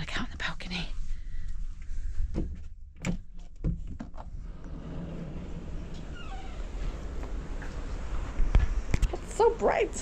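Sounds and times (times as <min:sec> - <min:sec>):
sliding door clicks and knocks: 0:03.0 - 0:09.1.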